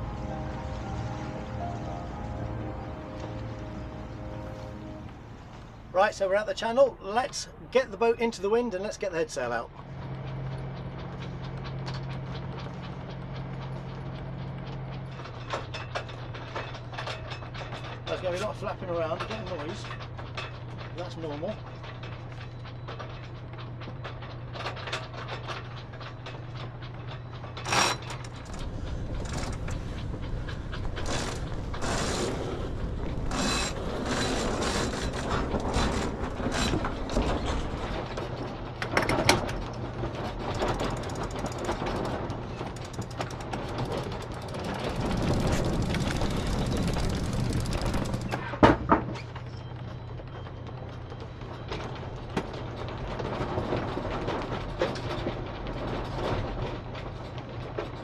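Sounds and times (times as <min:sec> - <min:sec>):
steady low hum: 0:25.4 - 0:38.9
winch ratcheting clicks: 0:40.5 - 0:48.3.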